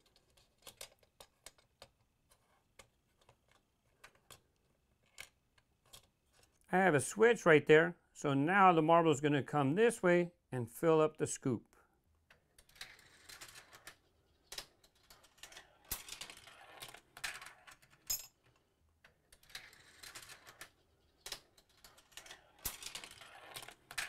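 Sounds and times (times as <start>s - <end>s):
marbles clicking on track pieces: 12.3s - 18.3s, 19.0s - 24.0s
marbles rolling on plastic track: 12.6s - 18.2s, 19.1s - 24.0s.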